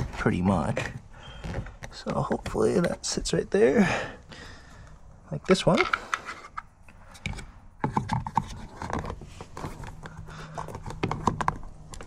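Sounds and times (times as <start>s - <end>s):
plastic rubbing: 0.0s - 3.1s, 5.7s - 12.0s.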